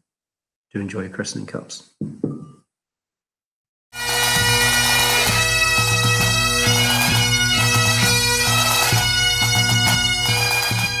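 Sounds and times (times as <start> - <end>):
bagpipe music: 4.0 - 11.0.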